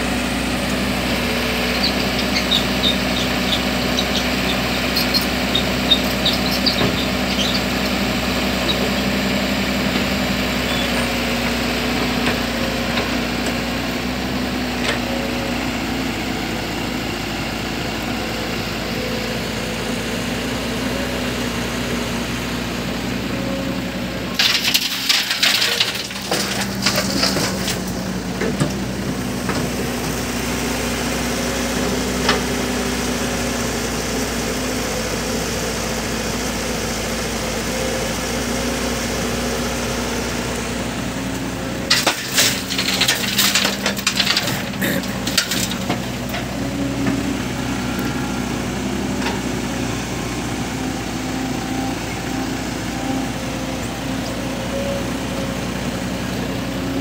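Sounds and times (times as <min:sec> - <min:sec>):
excavator diesel engine running: 0:00.0 - 0:57.0.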